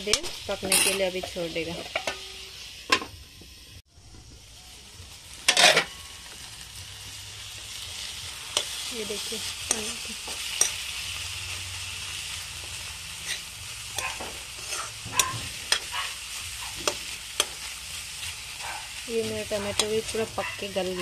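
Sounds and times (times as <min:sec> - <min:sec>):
food frying in oil: 0:00.0 - 0:21.0
metal spatula clicking on pan: 0:09.7 - 0:09.9.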